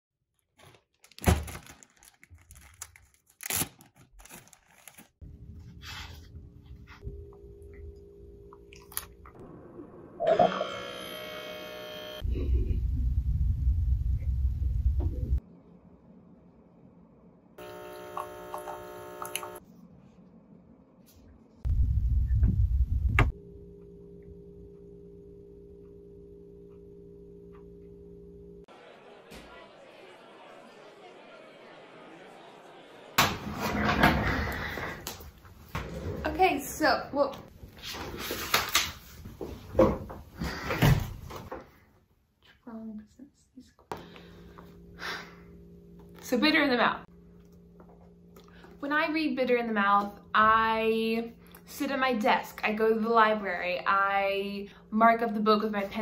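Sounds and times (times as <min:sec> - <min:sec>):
plastic bag crinkling: 0:00.6 - 0:05.2
steady low hum: 0:05.3 - 0:28.7, 0:43.9 - 0:56.0
loud low rumble: 0:12.3 - 0:15.4, 0:21.7 - 0:23.6.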